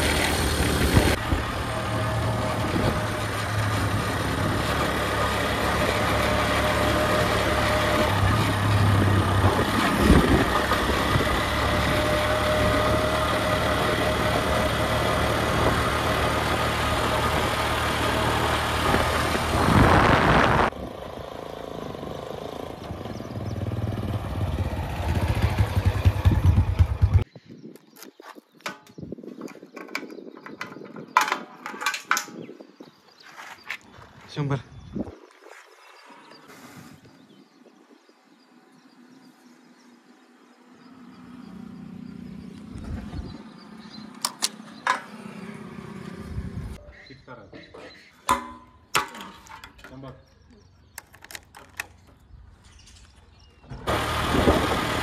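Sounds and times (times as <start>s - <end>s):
heavy diesel engine under load: 0.0s - 27.3s, 53.6s - 55.0s.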